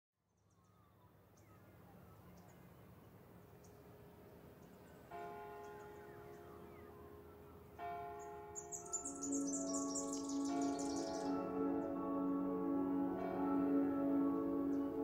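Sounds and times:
faint outdoor ambience: 0.2s - 15.0s
church bell ringing: 5.1s - 15.0s
bird chirps: 5.6s - 12.0s.

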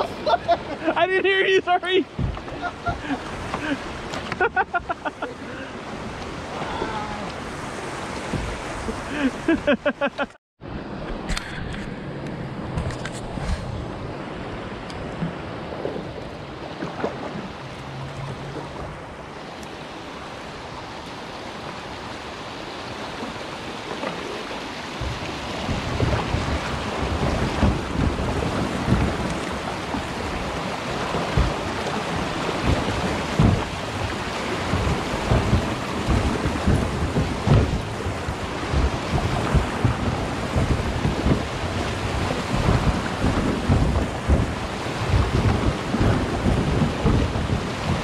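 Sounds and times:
whitewater rushing: 0.0s - 9.9s, 10.9s - 48.0s
low thumps: 2.1s - 2.6s, 31.2s - 34.1s, 34.7s - 48.0s.

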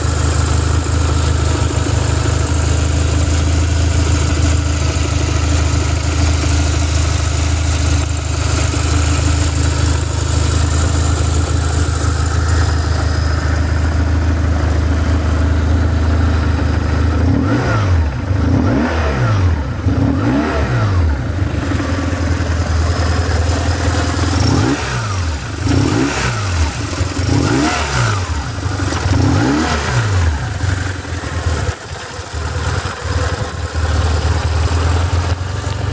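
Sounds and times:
motorcycle engine idling and revving: 0.0s - 35.9s.

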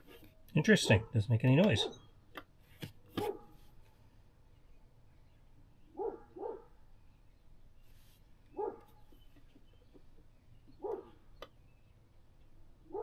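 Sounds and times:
dog barking: 1.7s - 2.0s, 3.2s - 3.6s, 6.0s - 6.7s, 8.6s - 8.9s, 10.8s - 11.2s.

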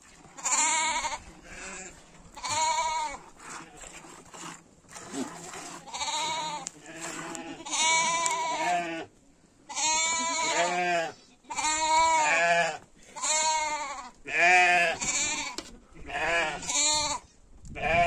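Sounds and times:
goats bleating: 0.4s - 3.9s, 5.6s - 9.1s, 9.7s - 17.2s.

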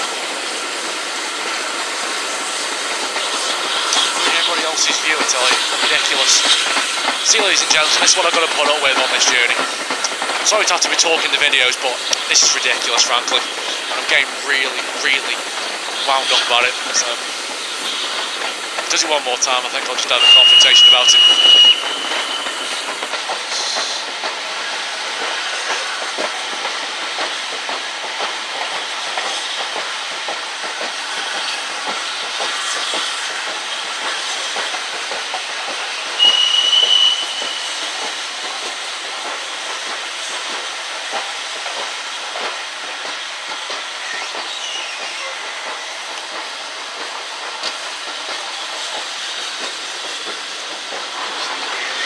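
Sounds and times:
train running rush: 0.0s - 52.0s
steam locomotive whistle: 20.2s - 22.6s, 36.2s - 37.7s.

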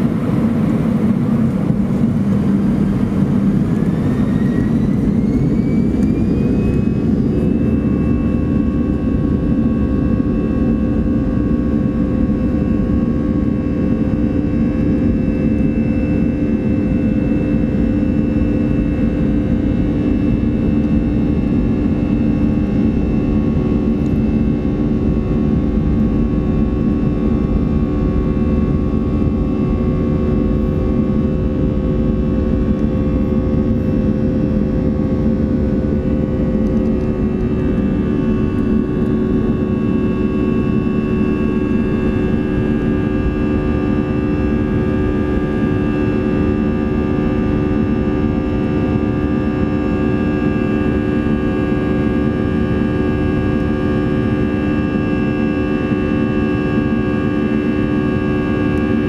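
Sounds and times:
jet engine rumble and whine: 0.0s - 59.0s.

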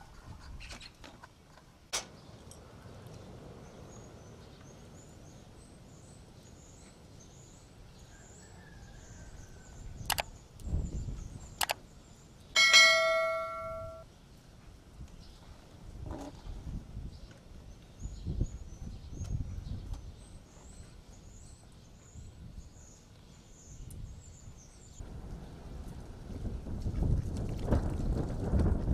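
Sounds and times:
sharp clicks: 10.0s - 10.7s, 11.6s - 11.8s
bell ding: 12.6s - 14.0s
faint clink: 12.6s - 14.0s.

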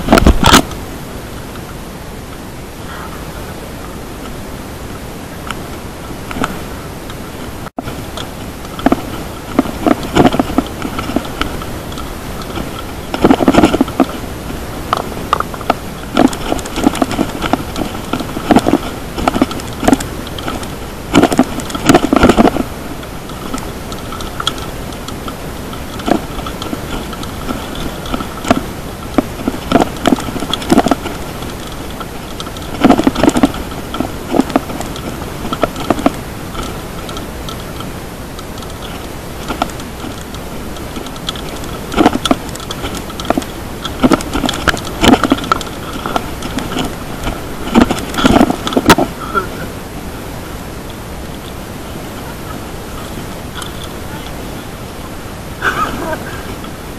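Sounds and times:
bike rattling and knocking: 0.0s - 0.8s, 6.2s - 49.4s
wind hiss on camera: 0.0s - 56.9s.

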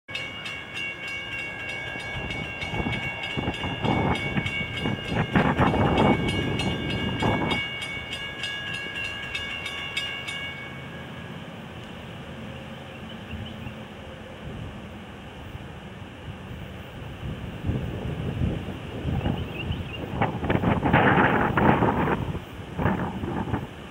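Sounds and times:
railroad crossing bell ringing: 0.1s - 12.2s.

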